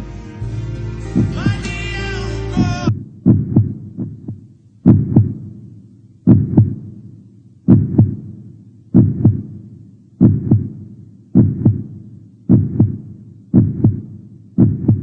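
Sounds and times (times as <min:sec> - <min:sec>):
held music chord: 0:00.0 - 0:02.9
heartbeat double thumps: 0:01.1 - 0:01.7, 0:02.6 - 0:15.0.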